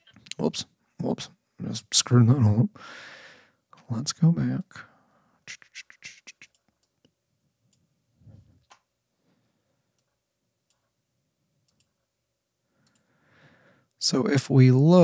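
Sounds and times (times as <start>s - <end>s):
soft computer mouse clicks: 11.6s - 12.0s, 12.8s - 13.1s.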